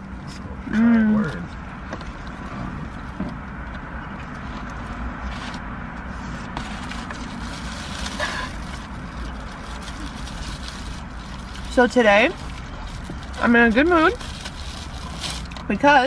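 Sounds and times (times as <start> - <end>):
car cabin hum: 0.0 - 16.0
paper wrapper rustling: 6.6 - 15.6.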